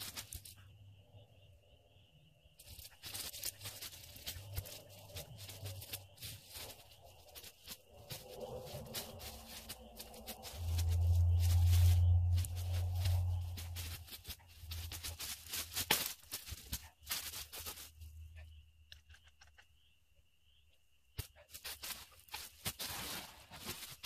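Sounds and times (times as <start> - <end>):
dry leaves crackling and rustling: 0.0 - 0.6, 2.6 - 18.2, 21.4 - 24.0
loud low rumble: 8.1 - 15.2.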